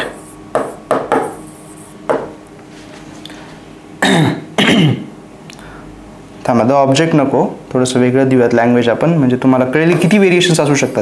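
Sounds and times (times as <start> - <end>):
man clearing his throat: 4.0 - 5.2.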